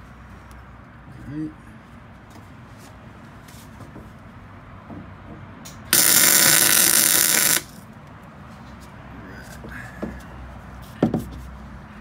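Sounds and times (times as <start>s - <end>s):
welder buzzing: 5.9s - 7.8s.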